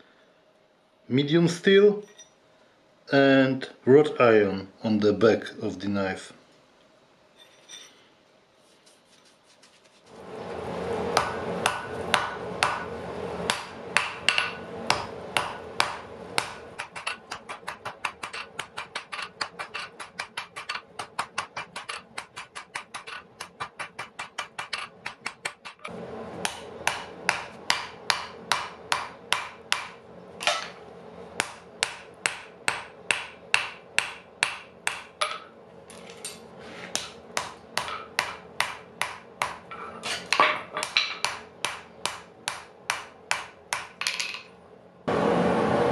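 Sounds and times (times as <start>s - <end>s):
hammer striking metal on anvil: 11.2s - 30.8s, 31.4s - 35.5s, 37.0s - 44.5s.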